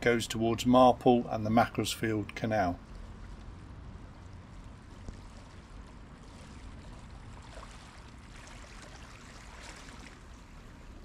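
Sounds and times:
low background noise: 0:00.0 - 0:11.0
paddle splashing in water: 0:04.5 - 0:11.0.

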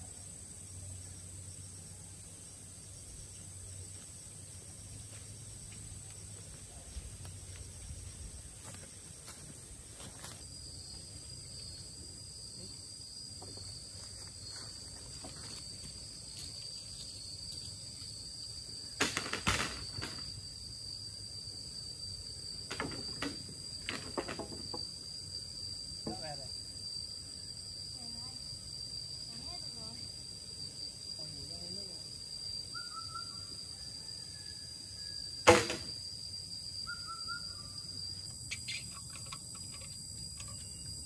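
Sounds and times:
insects droning: 0:00.0 - 0:41.0
sharp knocks: 0:35.4 - 0:35.9.

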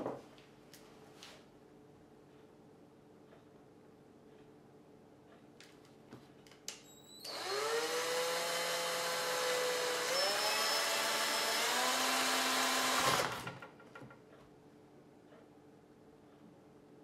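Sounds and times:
cordless drill motor whining: 0:07.2 - 0:13.5.

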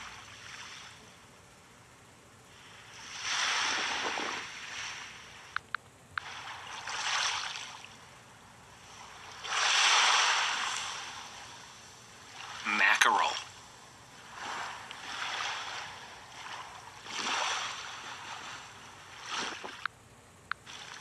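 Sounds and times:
ocean waves washing: 0:02.5 - 0:05.6, 0:06.2 - 0:19.9.

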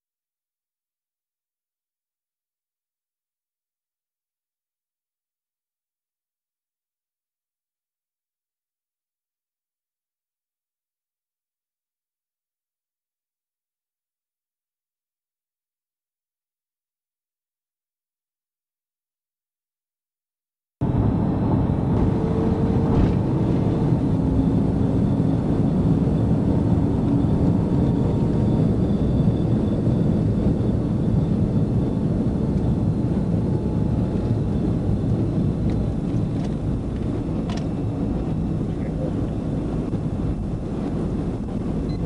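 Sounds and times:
car engine at speed: 0:20.8 - 0:42.0.

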